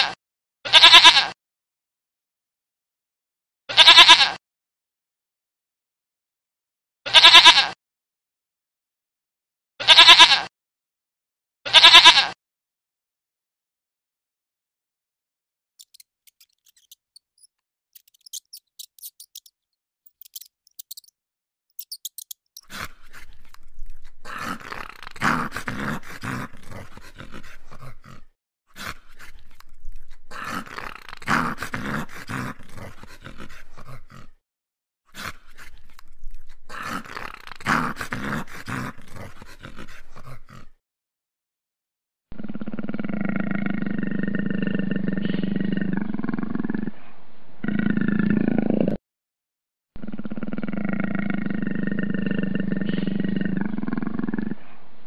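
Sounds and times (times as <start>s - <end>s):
faint high ticking: 15.8s - 19.5s, 20.1s - 21.1s
dog growling and barking: 22.6s - 34.4s, 35.1s - 40.8s, 50.1s - 55.0s.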